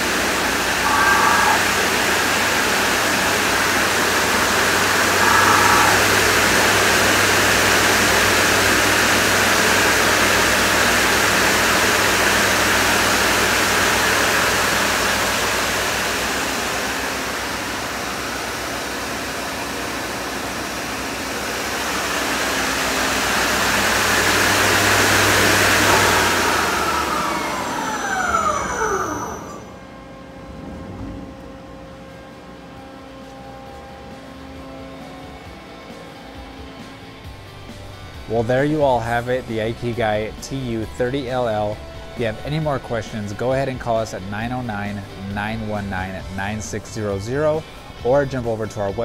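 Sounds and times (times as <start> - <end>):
lathe spindle whirring: 0.1 - 17.2, 21.0 - 30.0.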